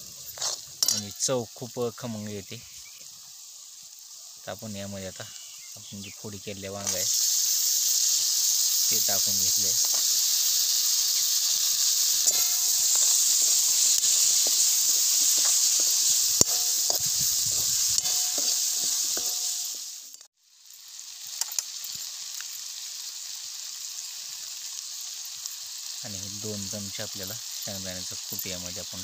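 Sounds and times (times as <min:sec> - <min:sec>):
eggplant sizzling in hot oil: 0:00.0 - 0:29.0
metal spatula scraping a pan: 0:11.2 - 0:19.8.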